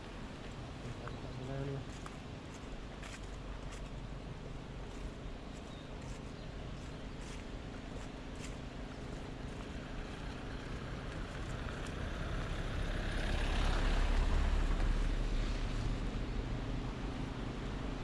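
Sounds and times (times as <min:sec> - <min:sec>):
motor vehicle passing by: 0:09.4 - 0:18.0.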